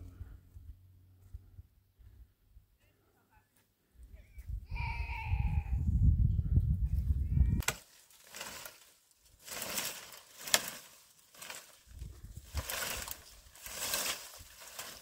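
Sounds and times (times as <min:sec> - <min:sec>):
sharp crack: 0:07.6 - 0:08.8, 0:09.4 - 0:11.8
dry branches snapping: 0:07.6 - 0:15.0.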